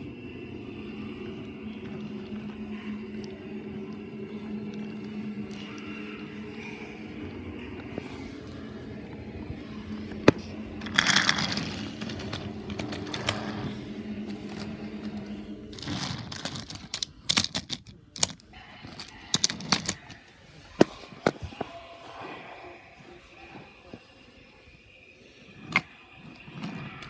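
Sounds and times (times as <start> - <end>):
toy train motor humming: 0.0 - 21.6
wooden toy track clicking: 15.8 - 20.2.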